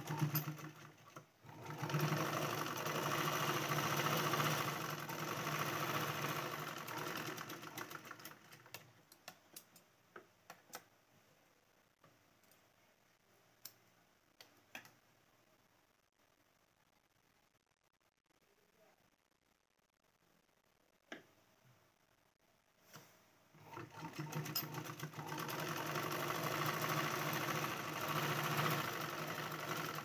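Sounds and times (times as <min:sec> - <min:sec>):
sewing machine stitching: 0:00.0 - 0:08.9, 0:23.6 - 0:30.0.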